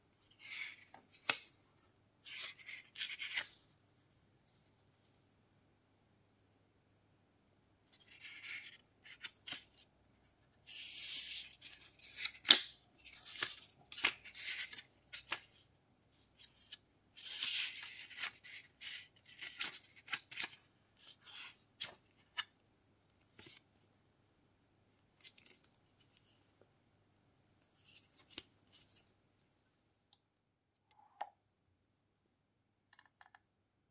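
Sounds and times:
paper pages rustling: 10.7 - 15.6, 16.4 - 22.5.

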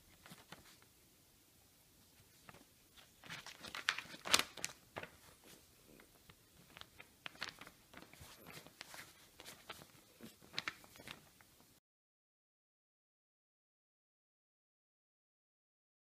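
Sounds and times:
paper crackling and ripping: 0.1 - 0.8, 2.3 - 5.6, 6.2 - 11.4.

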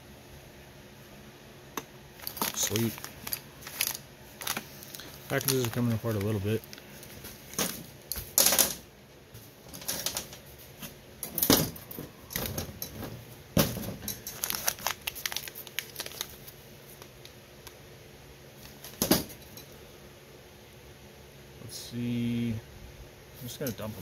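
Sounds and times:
paper crinkling: 2.2 - 7.8, 14.2 - 17.3.

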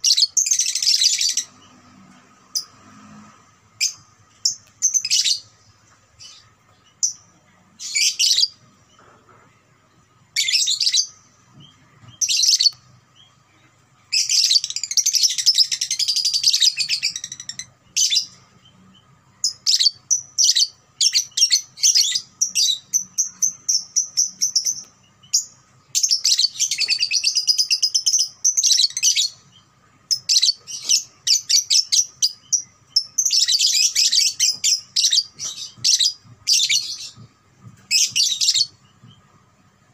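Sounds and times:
lovebird chattering song: 0.0 - 1.9, 3.8 - 5.5, 6.2 - 9.0, 10.3 - 39.3.

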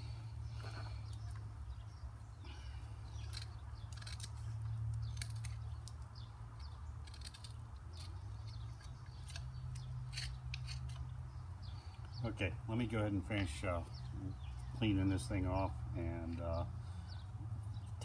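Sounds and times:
drawknife scraping bark: 6.9 - 11.1.

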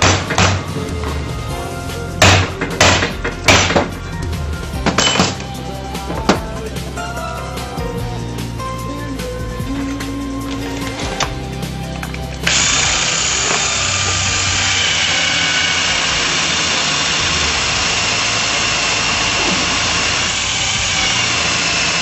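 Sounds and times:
music: 0.0 - 22.0
cordless drill boring into metal: 12.4 - 22.0.

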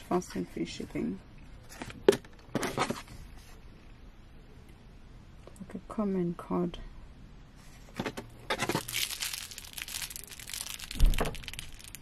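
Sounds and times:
plastic wrapping crinkling: 8.4 - 12.0.

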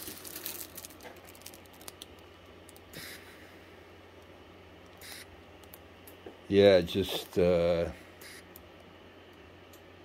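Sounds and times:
plastic bag crinkling: 0.0 - 2.9.

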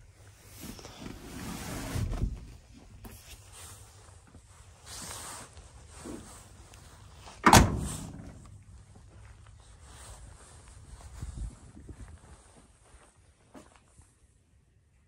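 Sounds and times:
car door slamming: 7.4 - 8.4.

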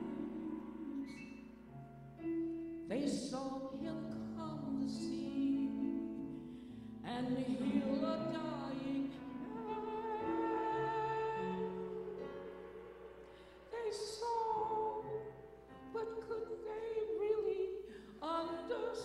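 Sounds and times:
woman singing: 0.0 - 1.6, 2.9 - 13.0, 13.6 - 19.0
sustained accompaniment chords: 6.9 - 15.9.

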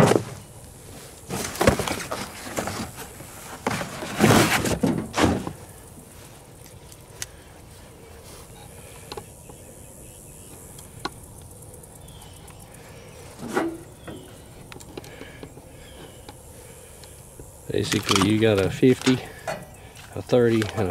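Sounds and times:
insects hissing: 4.5 - 20.9.

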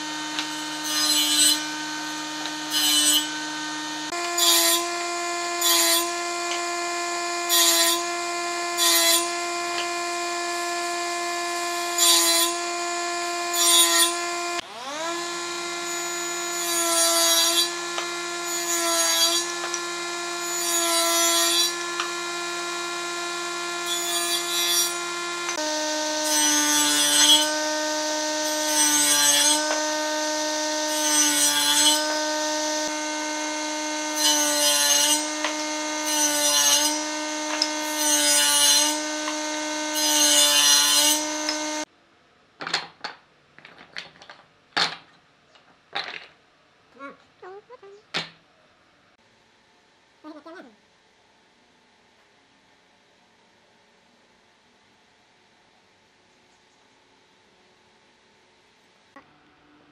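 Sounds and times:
power tool motor whining: 0.0 - 41.9
wood cutting noise: 0.0 - 41.9.

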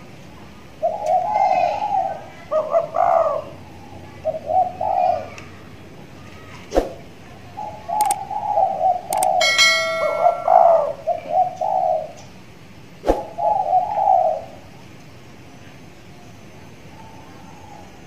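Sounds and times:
dove cooing: 0.7 - 5.4, 7.5 - 12.2, 13.2 - 14.7
sharp clicks: 8.0 - 8.2, 9.1 - 9.4
bell-like ding: 9.4 - 10.9.

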